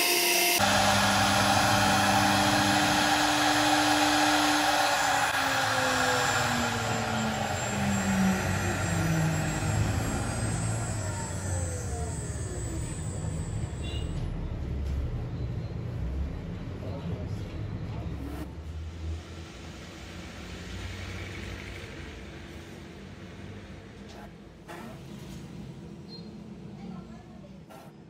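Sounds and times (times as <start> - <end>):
spindle motor whine spinning down: 0.0 - 13.9.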